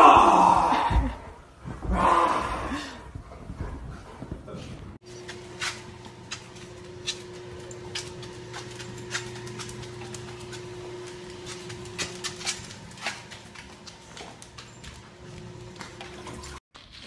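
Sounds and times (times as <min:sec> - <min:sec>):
steady low hum: 0:05.0 - 0:16.6.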